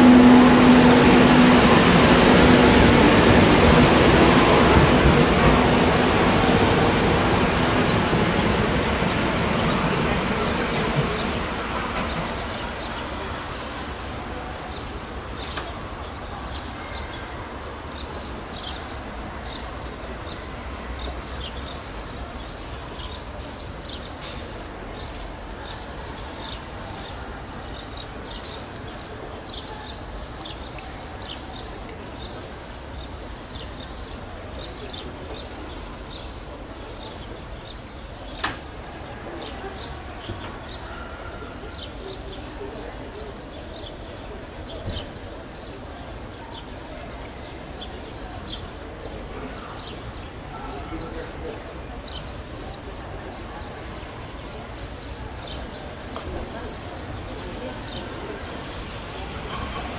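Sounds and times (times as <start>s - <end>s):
small birds chirping: 17.9s - 59.9s.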